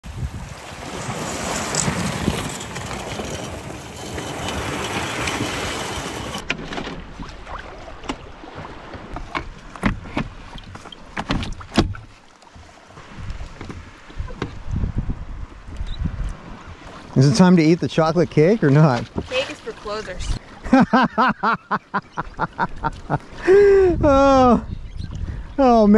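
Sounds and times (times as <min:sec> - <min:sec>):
waves washing over pebbles: 0:00.0 - 0:09.7, 0:18.6 - 0:20.7
wind on microphone: 0:00.0 - 0:10.8, 0:13.0 - 0:17.4, 0:22.3 - 0:25.9
canoe knocks and clunks: 0:01.6 - 0:14.9, 0:18.5 - 0:20.3.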